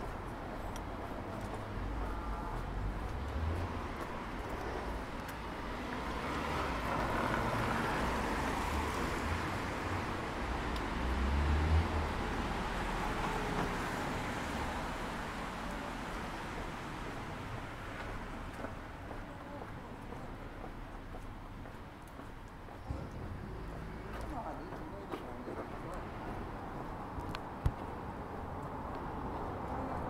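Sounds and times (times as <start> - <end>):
passing vehicle engine and tyres: 0.0 - 19.4.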